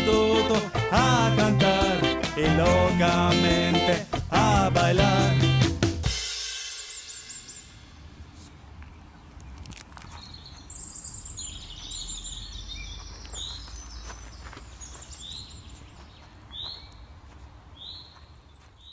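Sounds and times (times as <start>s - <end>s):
birds chirping and calling: 8.8s - 18.9s.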